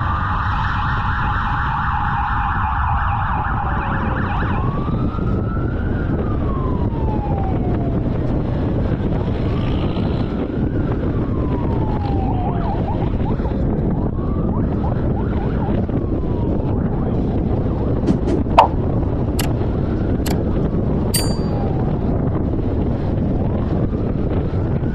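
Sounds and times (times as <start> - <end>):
police siren wailing: 0.0 - 8.3, 10.3 - 17.4
road noise: 8.0 - 24.8.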